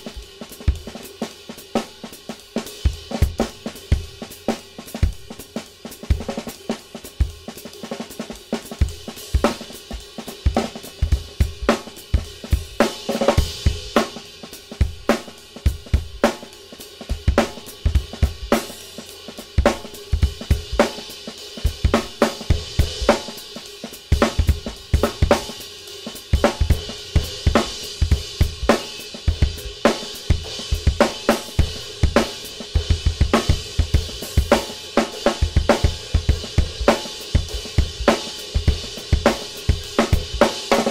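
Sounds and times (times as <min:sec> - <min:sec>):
drum kit groove: 0:00.0 - 0:40.9
ride cymbal wash: 0:00.0 - 0:40.9.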